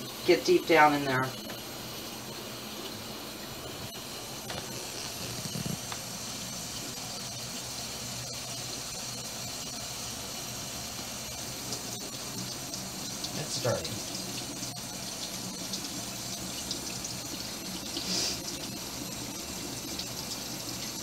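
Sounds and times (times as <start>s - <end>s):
faucet water running into sink: 0.0s - 21.0s
brush swirling in glass dish: 18.0s - 18.6s.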